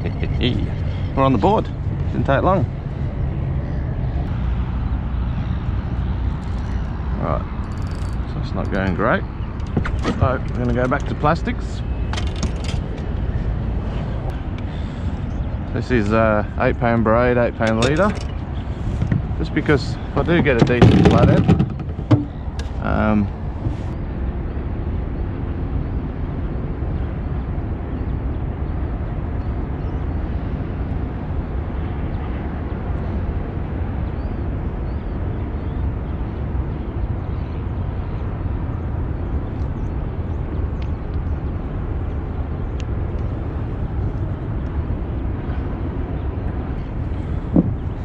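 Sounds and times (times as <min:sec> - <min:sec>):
low rumble: 0:00.0 - 0:27.3.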